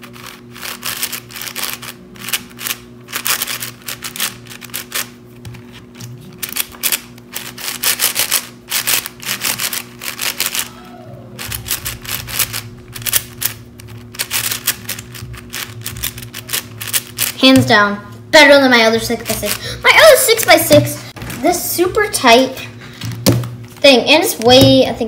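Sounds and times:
speed cube clicking: 0.1 - 5.1, 6.4 - 10.7, 11.4 - 17.4.

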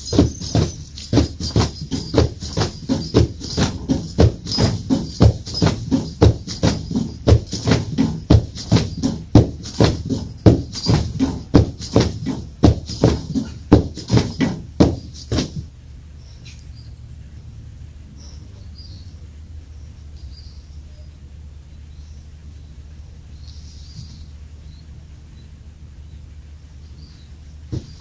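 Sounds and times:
battle ropes slapping the floor: 0.0 - 15.7.

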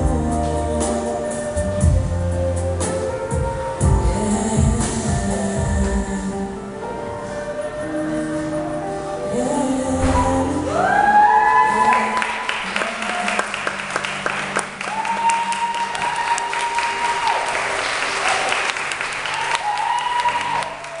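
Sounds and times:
people cheering: 10.6 - 21.0
audience applauding: 11.4 - 21.0.

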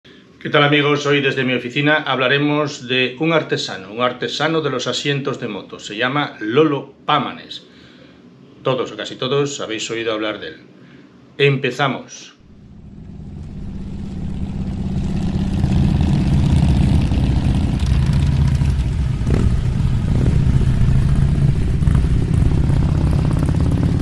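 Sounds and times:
motorcycle engine running: 12.5 - 24.0.

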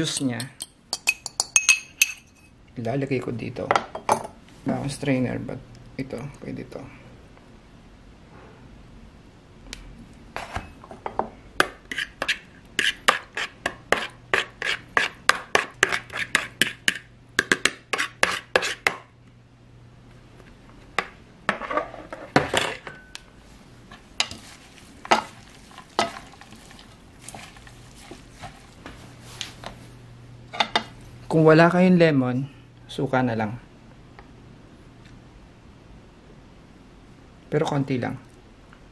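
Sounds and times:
utensil scraping: 11.8 - 17.1, 17.9 - 19.0, 23.9 - 29.8.

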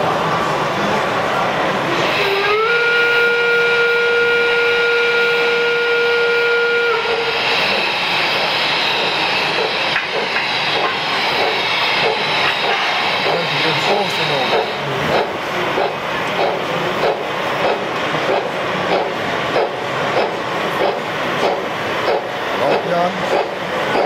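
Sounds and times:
steam hissing: 0.0 - 24.0
model steam whistle blast: 2.0 - 8.1
model train clattering on track: 7.7 - 24.0.

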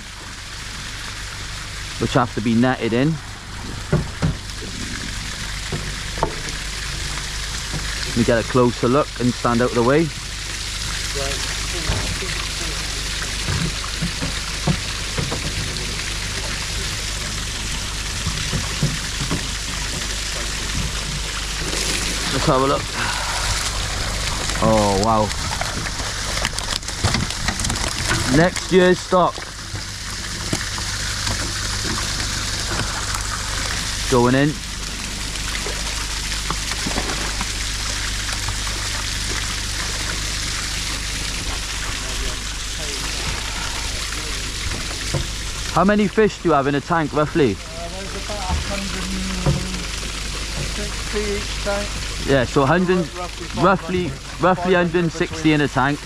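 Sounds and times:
low steady hum: 0.0 - 56.0
splashing water rush: 0.0 - 56.0.

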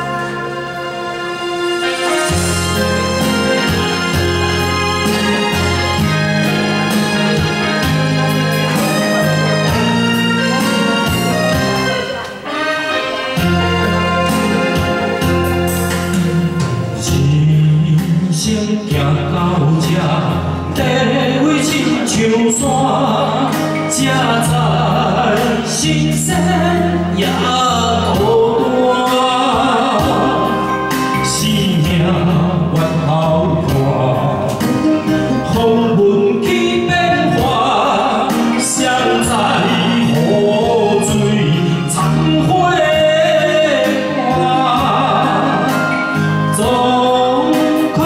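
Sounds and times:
karaoke backing track: 0.0 - 48.0
man singing into microphone: 0.0 - 48.0.

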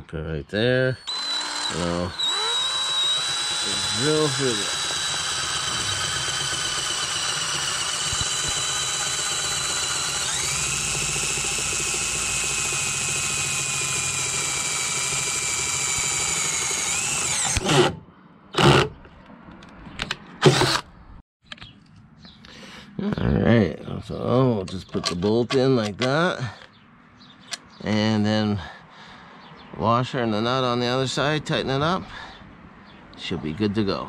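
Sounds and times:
cordless drill whining: 1.0 - 18.0, 20.4 - 20.8.

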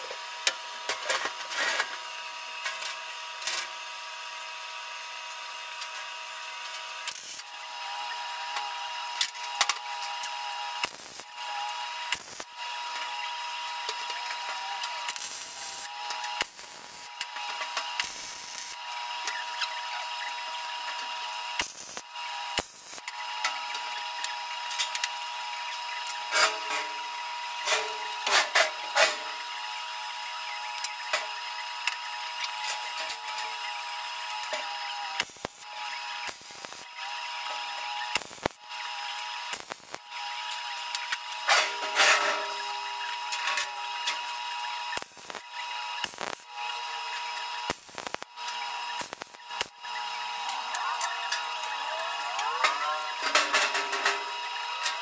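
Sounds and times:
welder arc crackling and buzzing: 0.0 - 55.0
steady hum: 45.0 - 55.0.

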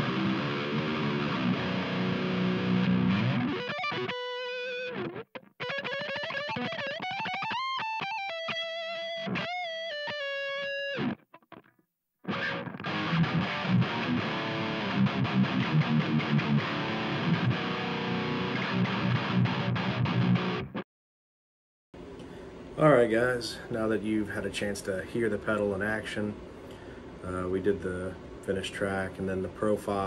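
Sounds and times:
distorted electric guitar riffs: 0.0 - 20.8
guitar lead line with bends: 0.0 - 20.8.

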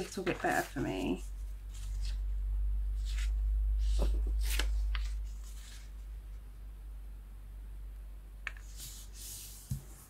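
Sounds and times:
paper rustling and crinkling: 0.0 - 2.2
low hum: 0.6 - 8.5.

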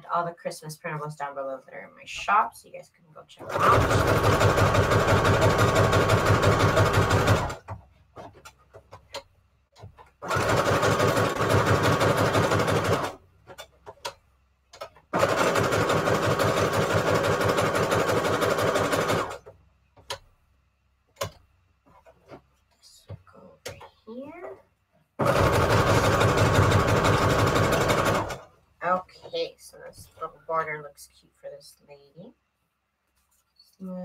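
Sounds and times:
sewing machine stitching paper: 3.4 - 7.7, 10.2 - 13.2, 15.1 - 19.5, 25.2 - 28.4.

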